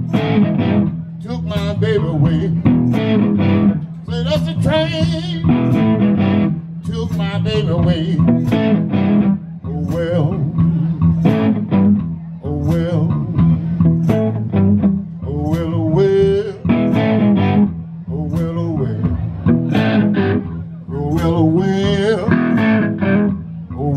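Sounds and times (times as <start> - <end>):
electric bass line: 0.0 - 23.9
electric guitar lead: 0.0 - 23.9.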